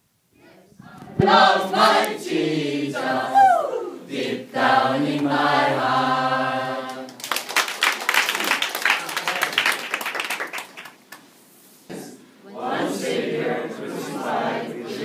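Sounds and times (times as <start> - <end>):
group singing in unison: 0.4 - 7.2, 11.9 - 15.0
people applauding: 7.1 - 11.2.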